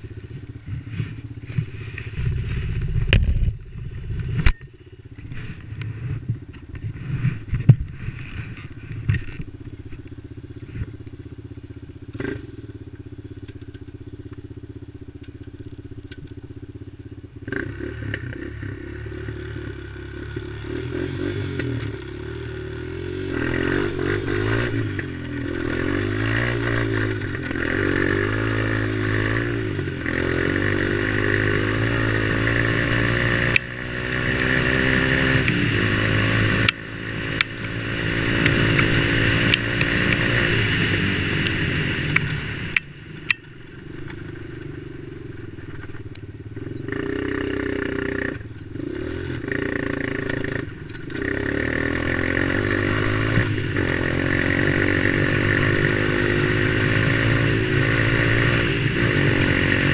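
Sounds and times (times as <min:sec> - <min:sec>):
quad engine revving: 0:12.1 - 0:12.7, 0:17.4 - 0:43.1, 0:44.0 - 0:59.9.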